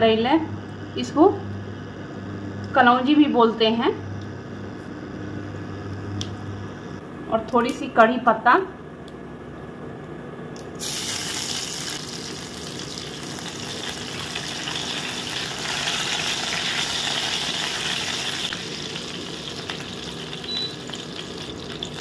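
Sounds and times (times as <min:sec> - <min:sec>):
seeds sizzling in oil: 0:10.8 - 0:22.0.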